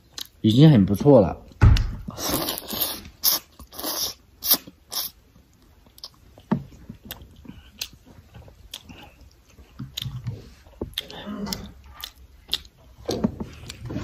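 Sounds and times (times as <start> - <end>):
chewing: 0.0 - 0.4, 2.1 - 14.0
person slurping noodles: 2.1 - 5.2.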